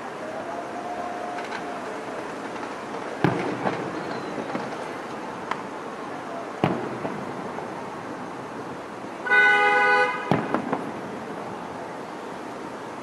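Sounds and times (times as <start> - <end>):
distant firework bursts: 1.2 - 5.4, 6.5 - 7.9, 9.2 - 11.3
horn honking: 9.2 - 10.4.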